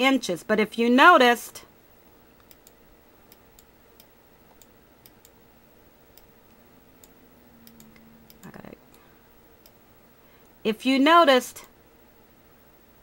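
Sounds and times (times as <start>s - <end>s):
computer mouse clicks: 2.4s - 5.4s, 6.1s - 9.0s.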